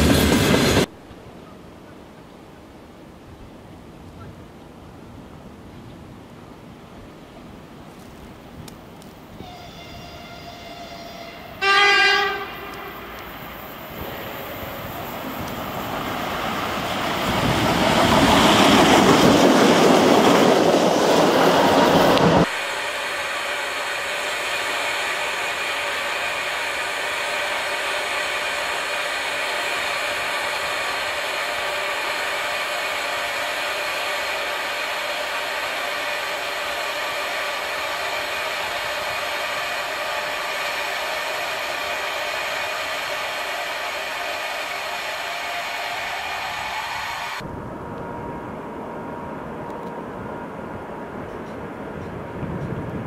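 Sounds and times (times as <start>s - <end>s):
train running past: 0.0s - 1.0s, 6.7s - 53.0s
locomotive horn blast: 9.4s - 13.2s
locomotive whirring hum: 12.2s - 53.0s.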